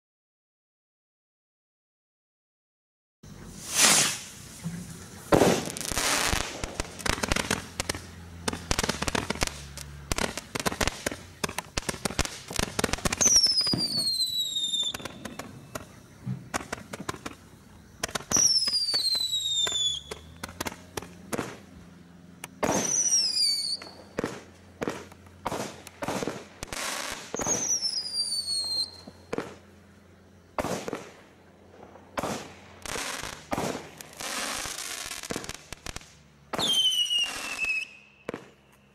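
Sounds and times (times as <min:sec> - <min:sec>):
fireworks bangs and crackling: 0:03.4 - 0:38.9
firework whistles falling in pitch: 0:03.6 - 0:17.4, 0:18.0 - 0:20.5, 0:22.6 - 0:29.6, 0:36.5 - 0:38.9.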